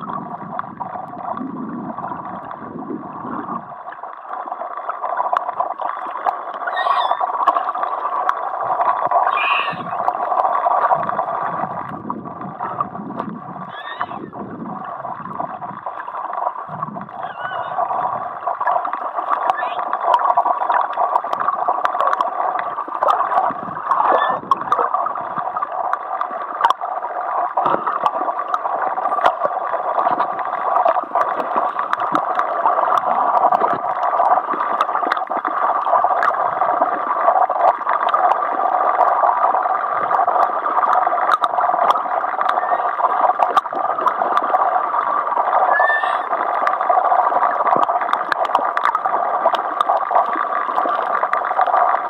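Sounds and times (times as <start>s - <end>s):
short underwater clicks and crackles: 3.6s - 52.0s.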